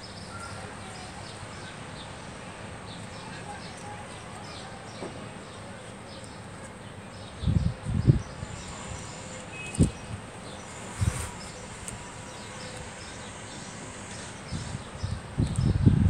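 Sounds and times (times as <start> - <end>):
outdoor hiss: 8.4 - 15.0.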